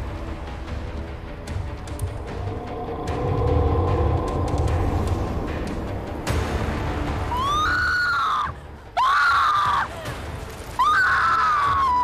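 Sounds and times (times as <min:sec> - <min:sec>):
low rumble: 0:01.4 - 0:07.7.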